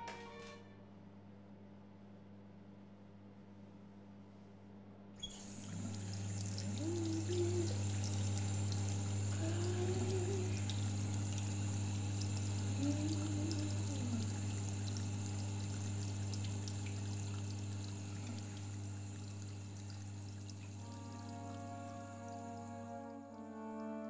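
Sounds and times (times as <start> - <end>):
tap water running into basin: 5.2 - 23.4.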